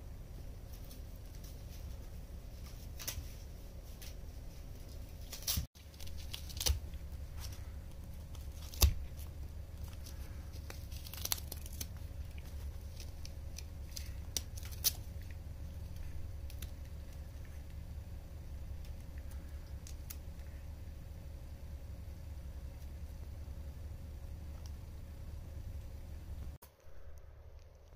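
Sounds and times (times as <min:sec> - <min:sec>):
cat ripping cardboard: 0:05.2 - 0:17.3.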